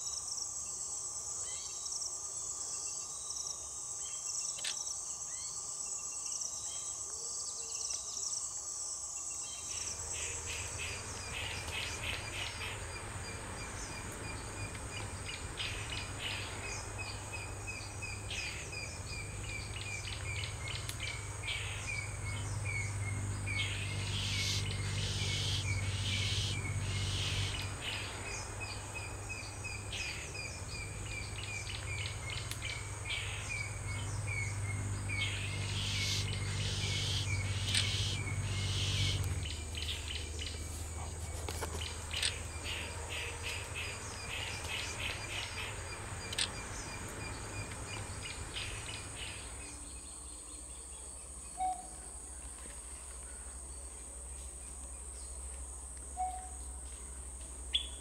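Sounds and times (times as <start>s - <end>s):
insects trilling: 0.0s - 58.0s
low hum: 9.4s - 51.1s
bird calling: 9.7s - 49.9s.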